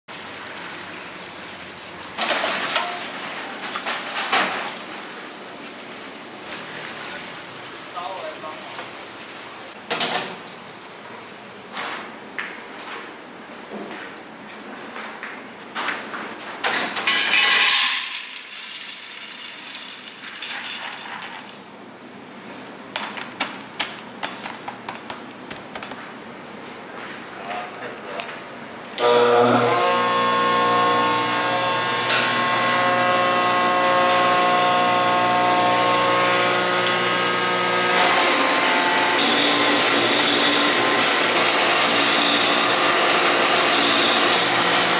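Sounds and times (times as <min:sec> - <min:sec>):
water sloshing and splashing: 0:00.1 - 0:09.9.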